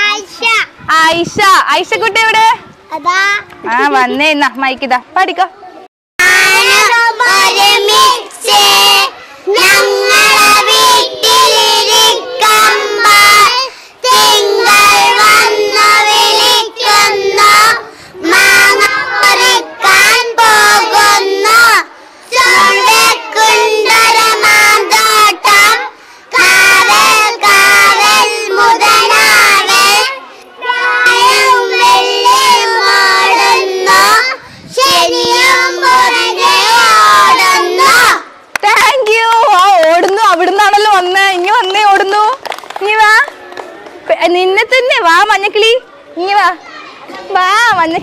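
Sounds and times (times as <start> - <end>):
children singing: 6.2 - 38.2.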